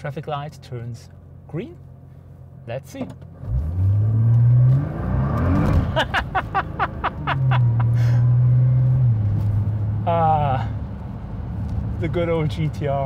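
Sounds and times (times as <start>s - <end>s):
car engine revving: 3.3s - 13.0s
person laughing: 5.8s - 8.3s.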